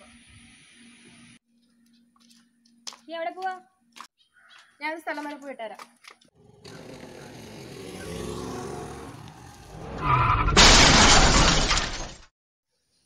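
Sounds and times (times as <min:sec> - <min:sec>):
scooter engine: 0:06.4 - 0:09.7
crash with shattering glass: 0:10.4 - 0:12.3.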